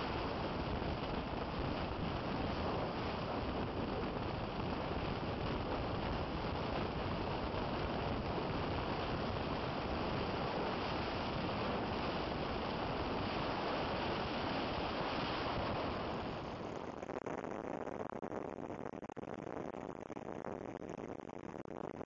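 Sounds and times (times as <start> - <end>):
highway road noise and wind rush: 0.0 - 16.8
wind on microphone: 0.0 - 17.6.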